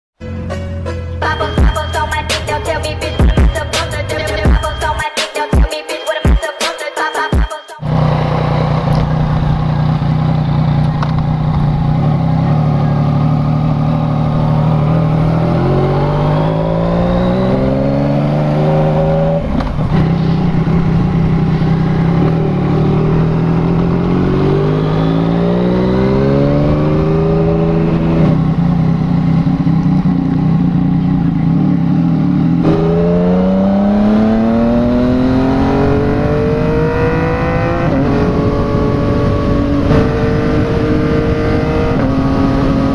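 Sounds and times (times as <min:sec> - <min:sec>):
motorcycle engine accelerating: 0:07.8 - 0:42.9.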